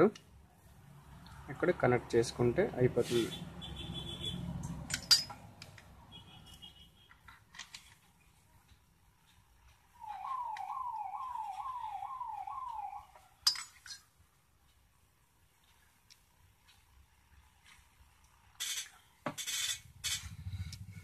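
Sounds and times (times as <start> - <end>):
siren-like electronic tone: 10.0 - 13.4.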